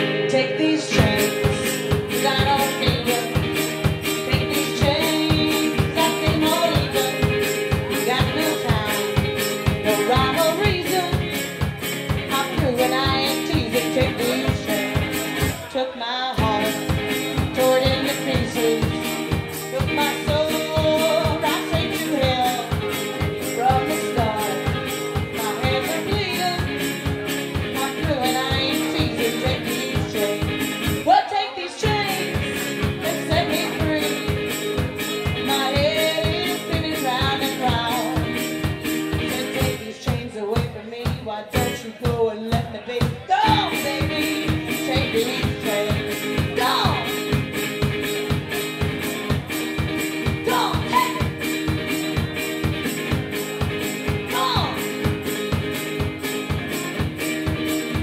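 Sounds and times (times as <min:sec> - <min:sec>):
person singing: 0:00.0 - 0:47.4, 0:50.2 - 0:52.8, 0:53.9 - 0:55.2
guitar: 0:00.0 - 0:58.0
bass drum and cymbals beat: 0:01.0 - 0:15.7, 0:16.4 - 0:31.1, 0:43.1 - 0:58.0.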